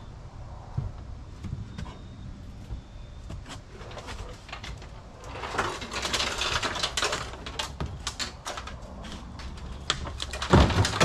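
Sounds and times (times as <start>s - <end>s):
sheet metal clattering and scraping: 3.8s - 11.0s.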